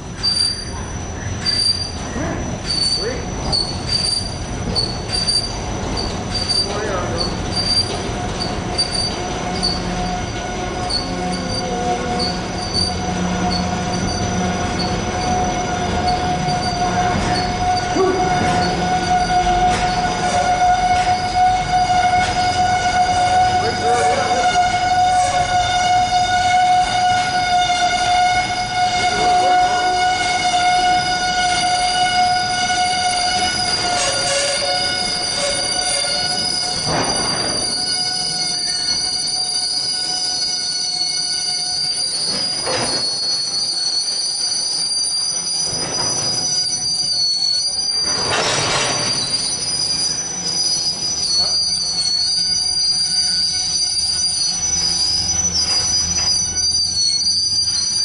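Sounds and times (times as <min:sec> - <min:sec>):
train cars clattering: 0:00.0 - 0:58.0
train wheels squealing: 0:00.0 - 0:58.0.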